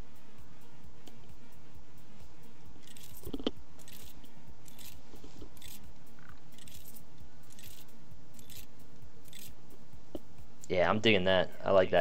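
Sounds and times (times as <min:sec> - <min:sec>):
stylus scratching on tablet: 0:06.6 - 0:08.7.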